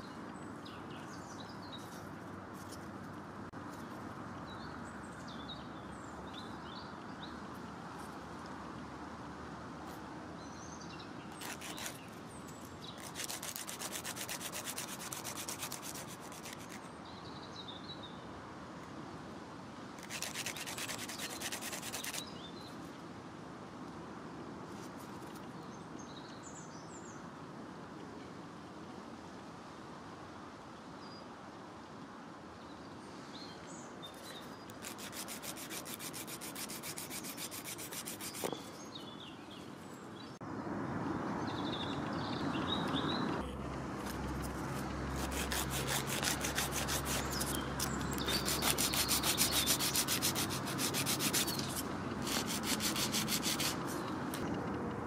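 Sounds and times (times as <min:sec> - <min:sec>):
nail file rasping on nail: 0:11.4 - 0:16.9, 0:20.0 - 0:22.3, 0:34.2 - 0:38.7, 0:44.5 - 0:54.0.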